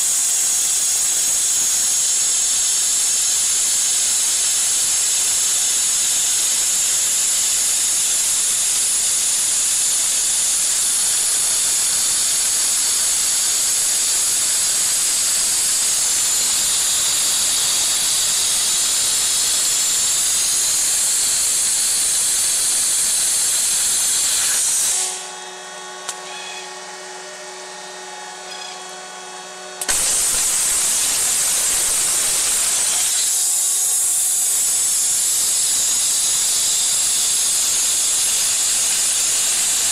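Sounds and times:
waterjet cutting hiss: 10.2 - 25.3, 29.8 - 39.9
machine hum with steady tones: 10.8 - 39.9.

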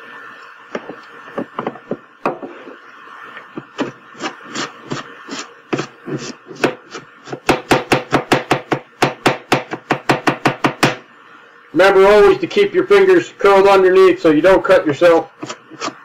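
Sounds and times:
knife chopping on cutting board: 5.8 - 11.0.

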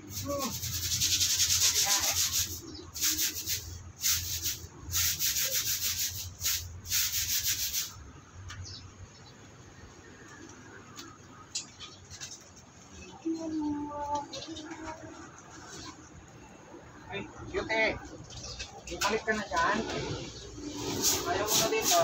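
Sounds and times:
stiff brush scrubbing: 0.0 - 7.8, 19.8 - 22.0.

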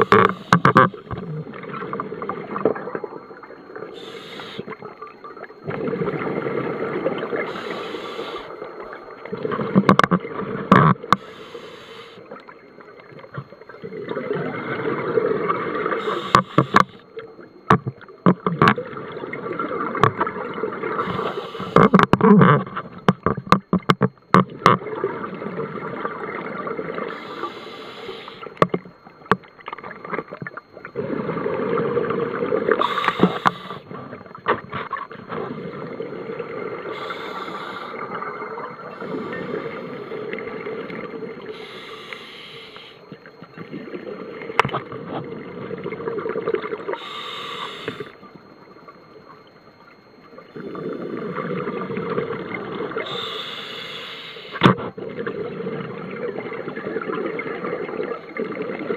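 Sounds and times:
diver breathing through regulator: 4.0 - 4.7, 7.4 - 8.6, 11.2 - 12.2, 16.0 - 17.0, 21.0 - 21.9, 27.1 - 28.5, 32.8 - 33.8, 36.9 - 38.0, 41.5 - 43.0, 46.9 - 48.2, 53.0 - 54.6.

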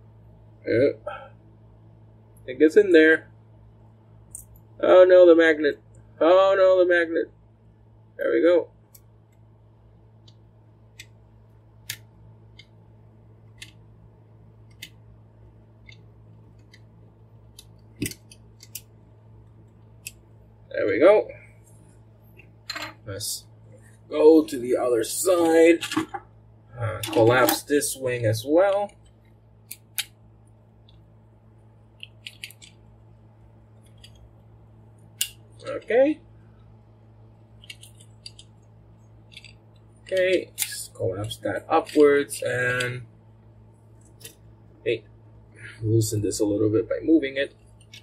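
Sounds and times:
plastic toy parts clicking: 32.0 - 32.8.

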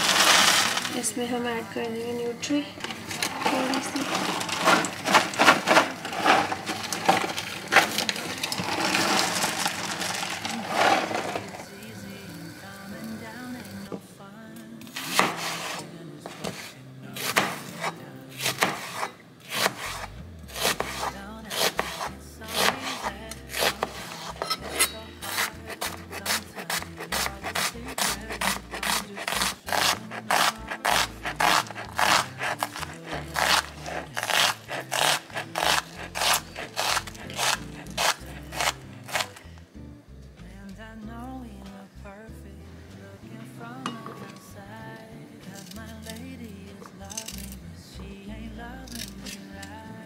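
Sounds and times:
packaging crinkling: 0.0 - 1.0, 2.9 - 11.6, 30.0 - 39.4
knife slicing onion on board: 15.1 - 39.4.

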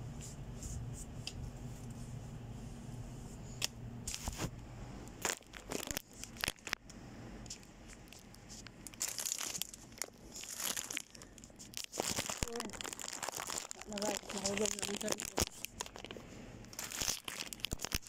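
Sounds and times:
plastic packaging crinkling: 5.2 - 6.8, 7.5 - 18.0.

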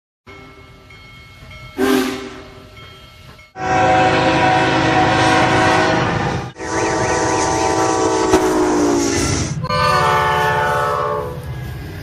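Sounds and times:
passing train: 0.3 - 12.0
locomotive air horn: 1.8 - 2.6, 3.6 - 11.5
steam locomotive whistle blast: 1.8 - 2.6, 3.6 - 11.6.

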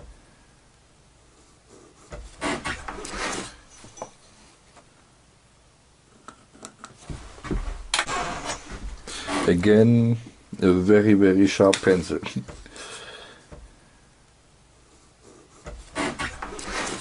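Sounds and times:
wood scraping on plywood: 1.8 - 3.7, 6.4 - 9.9, 15.3 - 17.0.

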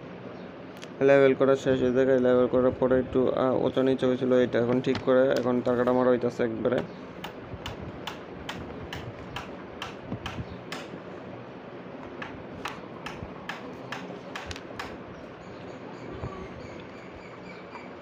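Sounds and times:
hammer tapping nails into wood: 6.8 - 11.0, 12.0 - 15.0.

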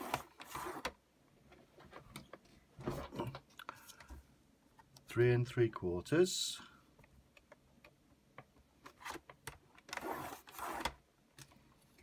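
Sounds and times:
scoring blade scraping cardstock: 0.0 - 0.9, 10.0 - 11.0.

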